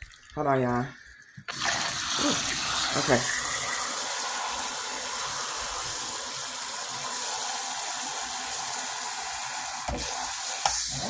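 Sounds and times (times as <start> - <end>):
faucet water pouring into pot: 0.0 - 11.0.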